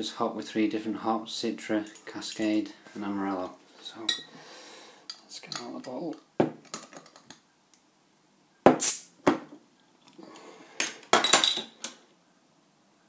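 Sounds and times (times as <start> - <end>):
bottle cap snapping off: 8.7 - 9.1
carbonation gas hiss: 8.7 - 9.2.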